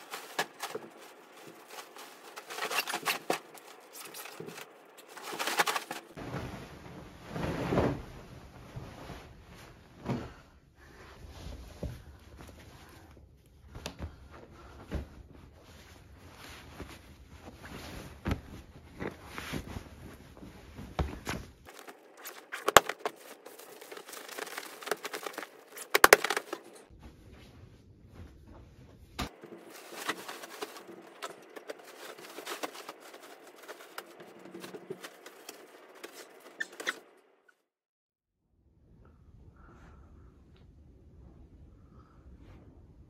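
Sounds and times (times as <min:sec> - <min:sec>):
bedding rustling: 0:00.0 - 0:10.4, 0:13.6 - 0:37.1.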